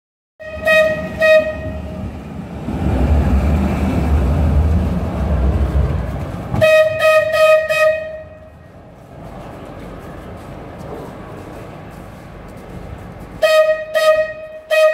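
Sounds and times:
tram horn hooting: 0.4s - 8.8s, 13.3s - 14.9s
tram passing with low rumble: 0.4s - 14.9s.

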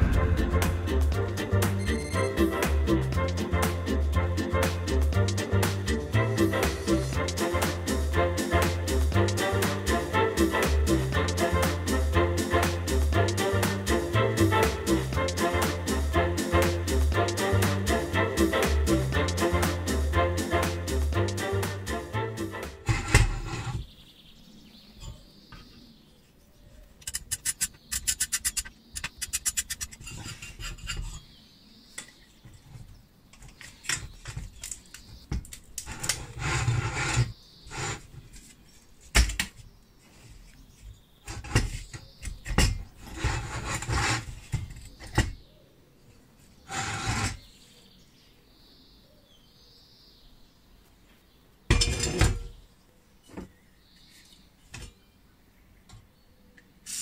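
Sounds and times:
sharp knock: 0.0s - 2.0s
metal parts rattling and clunking: 51.7s - 52.6s.

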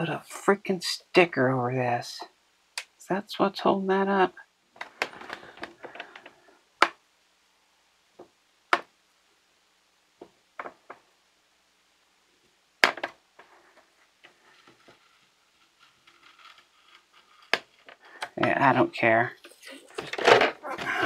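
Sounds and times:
scratchy rustle: 13.4s - 18.2s.

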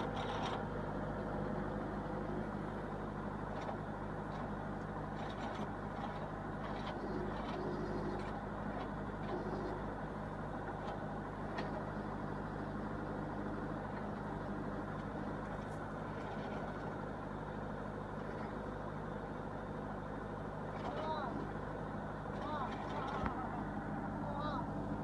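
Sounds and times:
backhoe digging soil: 0.0s - 19.2s, 19.8s - 24.2s
tractor engine running: 0.0s - 25.0s.

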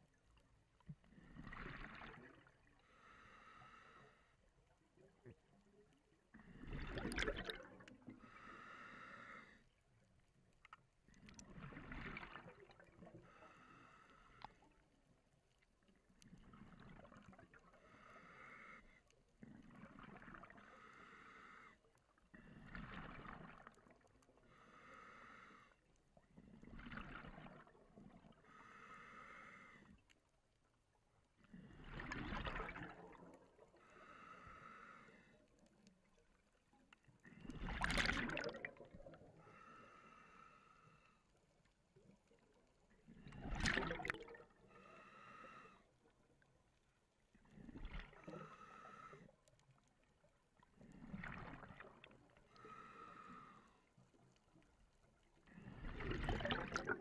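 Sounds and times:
regulator inhale hiss: 2.9s - 4.3s, 8.2s - 9.6s, 20.6s - 21.8s, 24.5s - 25.8s, 28.5s - 29.9s, 33.8s - 35.3s, 39.5s - 41.2s, 44.8s - 45.8s, 48.4s - 49.3s, 52.6s - 53.8s.

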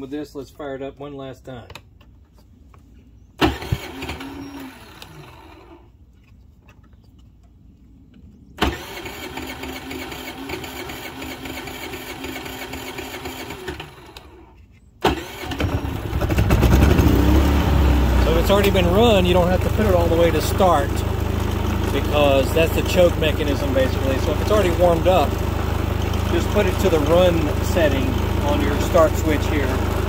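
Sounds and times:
generator engine starting and running: 3.4s - 6.0s, 8.6s - 30.0s.

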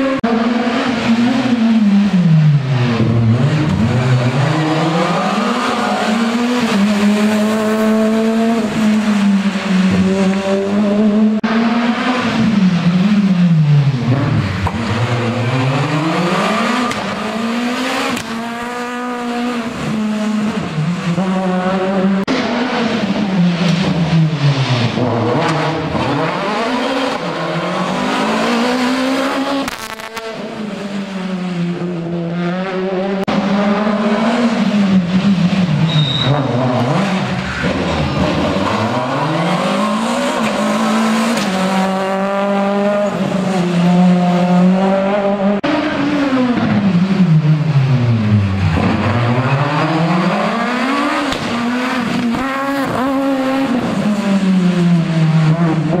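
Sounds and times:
rally car engines revving: 0.0s - 56.0s
tyre squeal: 35.8s - 36.6s.

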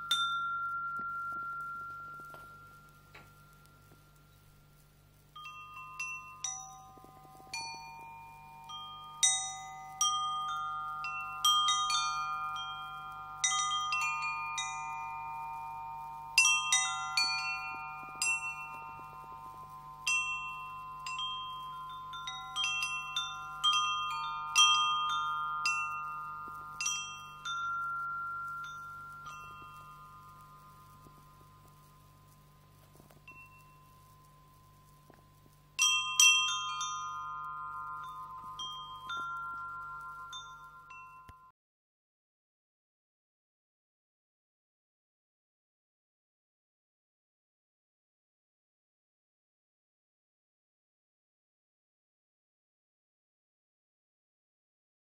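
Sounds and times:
wind chime ringing: 0.0s - 4.7s, 5.3s - 41.5s.

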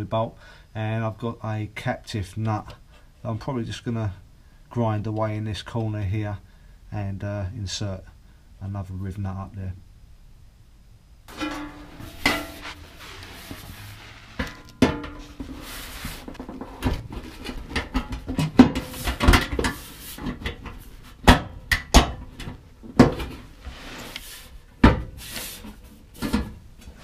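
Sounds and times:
sheet metal clunking and rattling: 11.3s - 13.2s, 14.4s - 15.6s.

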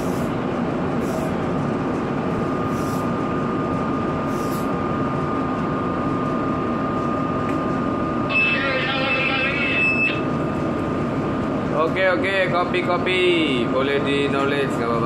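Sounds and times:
aerosol spray hissing puffs: 0.0s - 0.3s, 1.0s - 1.4s, 2.6s - 3.1s, 4.3s - 4.7s
ship machinery rumble and hum: 0.0s - 14.1s.

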